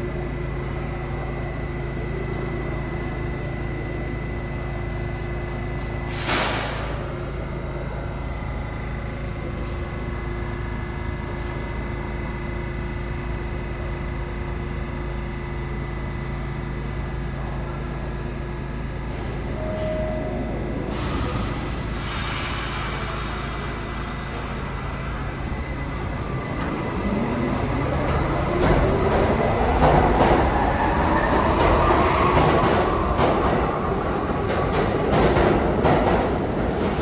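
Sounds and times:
air brakes hissing and squealing: 0:05.8 - 0:07.1, 0:20.8 - 0:26.2
blast of air: 0:06.1 - 0:07.0.

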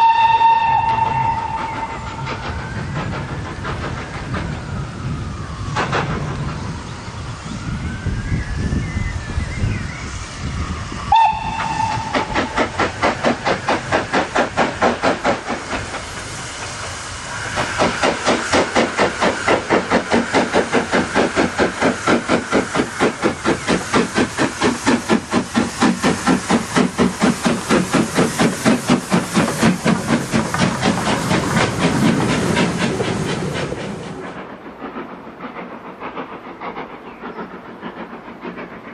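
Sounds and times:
steam locomotive whistle: 0:00.0 - 0:02.7, 0:11.0 - 0:12.8
steam locomotive chuffing: 0:00.0 - 0:38.9.

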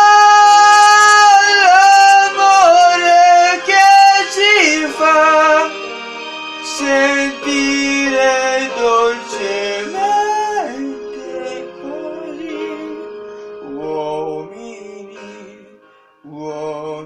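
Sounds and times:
person singing pop ballad: 0:00.0 - 0:05.7
backing track: 0:00.0 - 0:17.0.

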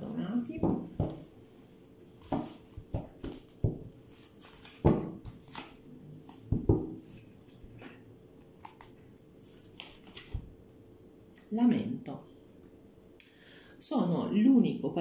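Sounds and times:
cards being shuffled: 0:02.2 - 0:07.3, 0:08.4 - 0:10.5.

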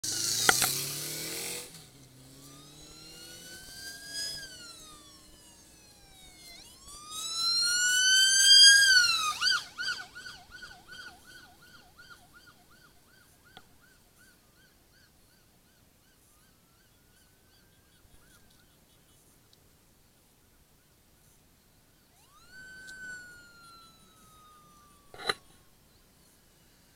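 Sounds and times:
vehicle siren wailing and yelping: 0:02.2 - 0:13.9, 0:22.1 - 0:25.6.

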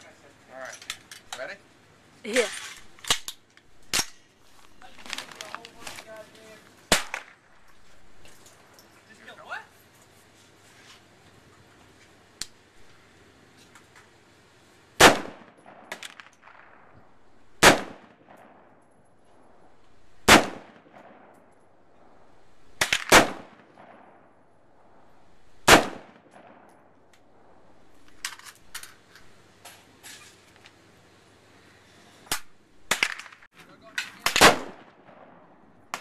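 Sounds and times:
faint sharp cracks and clinks: 0:00.6 - 0:01.6, 0:15.4 - 0:17.1, 0:18.2 - 0:19.9, 0:20.8 - 0:22.2, 0:28.0 - 0:30.8, 0:32.2 - 0:35.3
rifle shots with echo: 0:06.9 - 0:07.5, 0:15.0 - 0:18.8, 0:19.5 - 0:22.2, 0:22.8 - 0:27.8, 0:32.3 - 0:33.5, 0:34.2 - 0:36.0.

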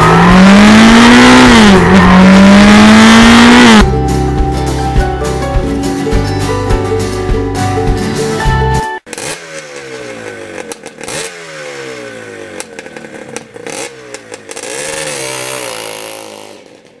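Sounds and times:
exhaust crackles: 0:00.0 - 0:03.9
motorcycle engine revving: 0:00.0 - 0:03.9, 0:09.1 - 0:17.0.

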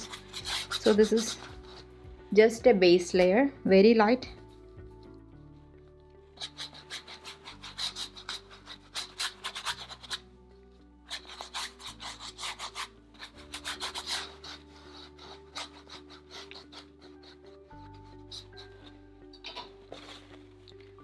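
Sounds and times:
paintbrush scrubbing on canvas: 0:00.0 - 0:02.0, 0:06.4 - 0:10.2, 0:11.1 - 0:20.6
soft background music: 0:00.0 - 0:21.0.

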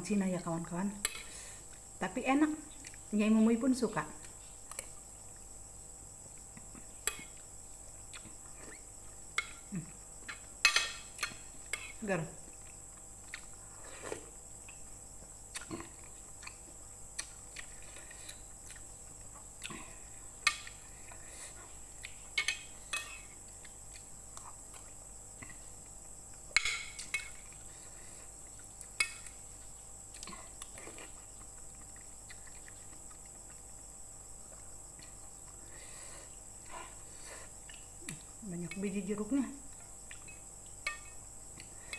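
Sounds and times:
cutlery clinking on ceramic plate: 0:10.7 - 0:11.1.

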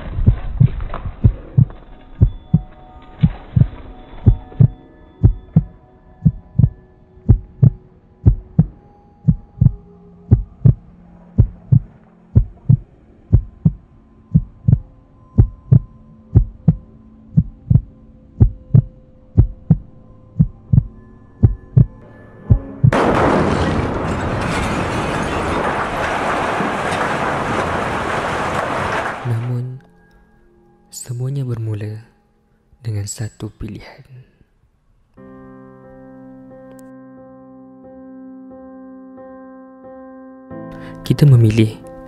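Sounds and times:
heartbeat thumps: 0:00.2 - 0:02.6, 0:04.3 - 0:10.8, 0:11.4 - 0:16.8, 0:17.4 - 0:23.0.

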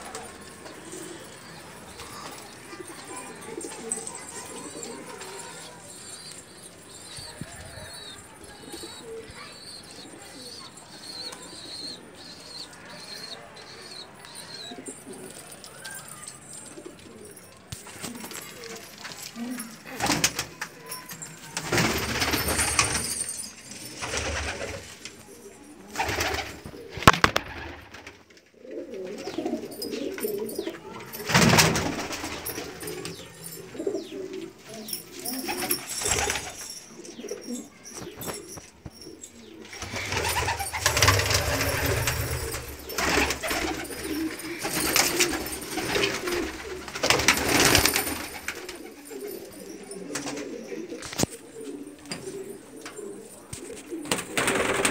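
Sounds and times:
pigeons cooing: 0:00.0 - 0:54.9
rustling: 0:13.8 - 0:54.9.

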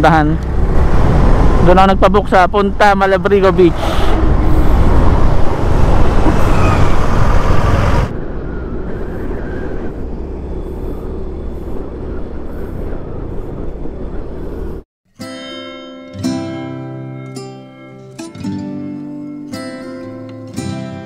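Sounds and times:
road noise: 0:00.0 - 0:14.9, 0:16.2 - 0:21.0
wind buffeting microphone: 0:00.4 - 0:01.6, 0:03.7 - 0:14.8.

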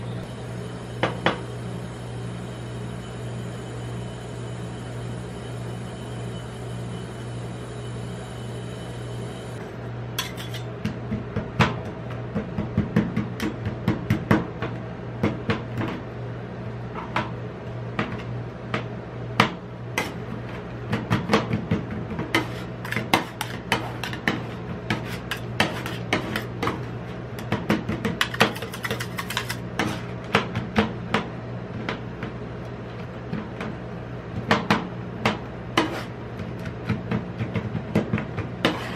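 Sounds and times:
steady low hum: 0:00.0 - 0:38.9
metal spatulas chopping on steel plate: 0:10.2 - 0:10.7, 0:22.3 - 0:26.6, 0:27.5 - 0:30.4, 0:38.6 - 0:38.9
spatula scraping: 0:10.2 - 0:10.7, 0:21.9 - 0:30.3, 0:35.8 - 0:36.8, 0:37.6 - 0:38.9.

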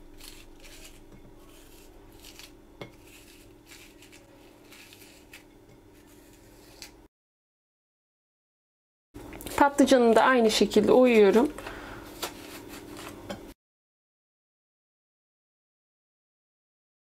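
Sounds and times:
corer scraping zucchini: 0:00.2 - 0:07.1, 0:12.1 - 0:13.2.

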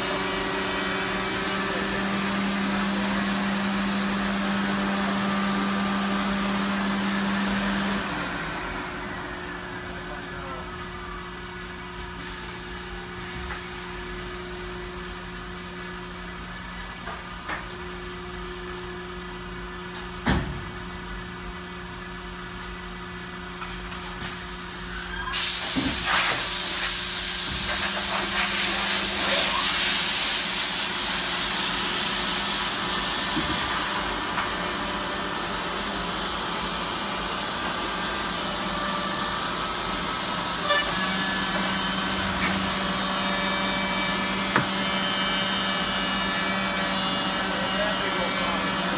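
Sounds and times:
machine humming: 0:30.6 - 0:48.9
thin high whine: 0:38.2 - 0:46.2.

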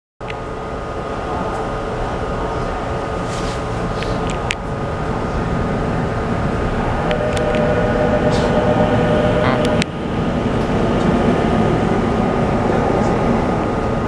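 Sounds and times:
train air conditioning hum: 0:00.2 - 0:14.0
thin steady tone: 0:06.9 - 0:09.8.

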